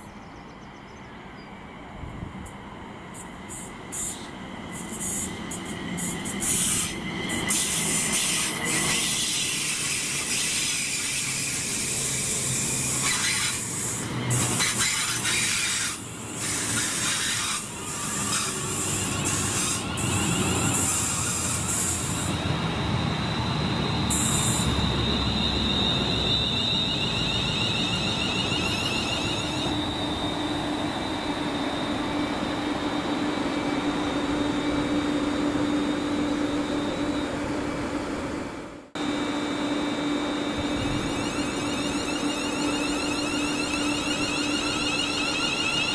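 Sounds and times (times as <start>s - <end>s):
train wheels rumbling on rails: 0.8s - 45.9s
steady high whine: 17.6s - 45.9s.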